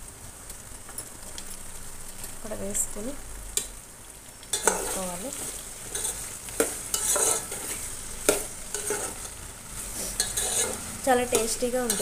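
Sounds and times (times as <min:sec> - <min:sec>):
frying sizzle: 0:00.0 - 0:12.0
metal spoon scraping a pot: 0:04.5 - 0:12.0.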